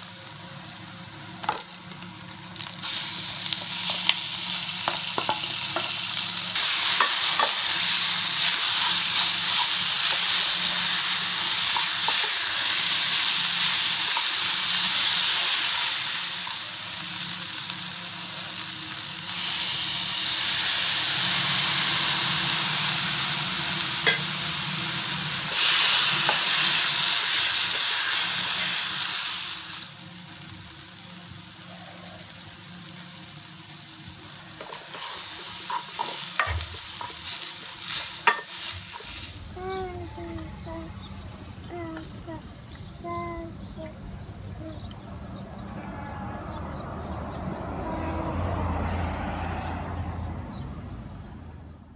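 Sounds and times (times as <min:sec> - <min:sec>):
onions and potato sizzling: 0:00.0 - 0:40.9.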